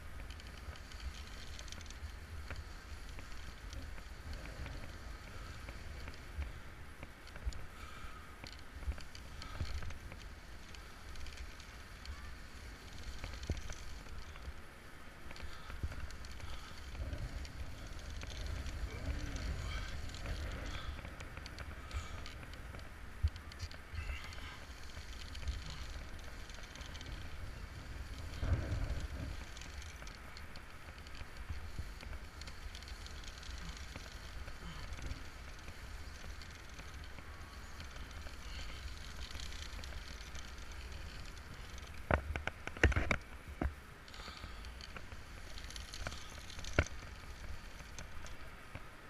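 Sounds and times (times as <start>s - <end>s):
rope and harness rustling: 0.0s - 49.0s
wind rumbling on microphone: 0.0s - 49.0s.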